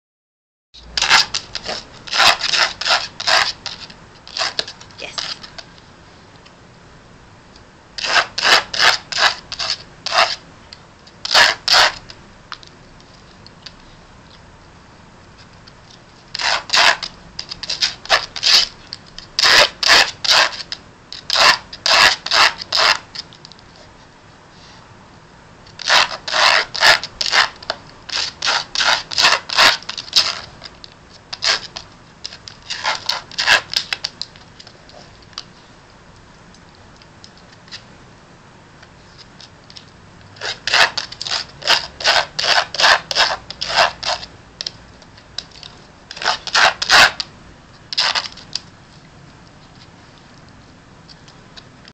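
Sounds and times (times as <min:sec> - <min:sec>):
dog claws scratching a pad: 0:01.0 - 0:05.6, 0:08.0 - 0:10.4, 0:11.2 - 0:12.1, 0:16.3 - 0:23.3, 0:25.8 - 0:35.5, 0:40.4 - 0:44.8, 0:45.4 - 0:47.3, 0:47.9 - 0:48.6.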